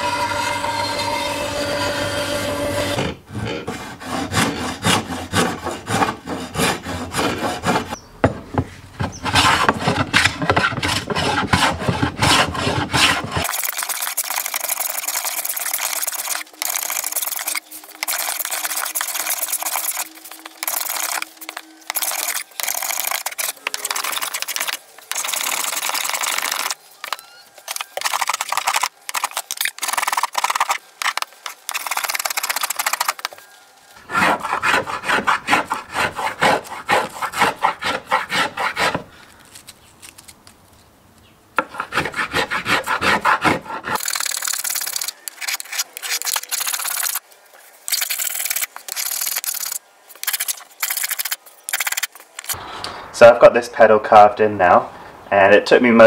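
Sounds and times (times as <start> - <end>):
hand plane shaving wood: 2.6 - 8.0, 9.0 - 26.8, 34.0 - 39.1, 41.6 - 44.1.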